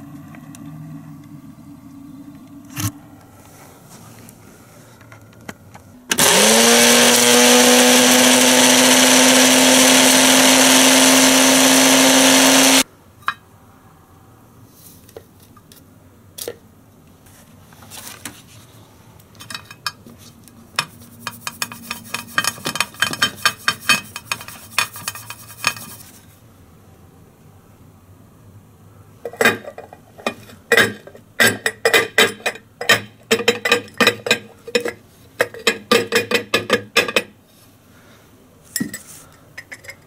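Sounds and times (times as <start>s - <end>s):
blender motor grinding: 6.1s - 12.8s.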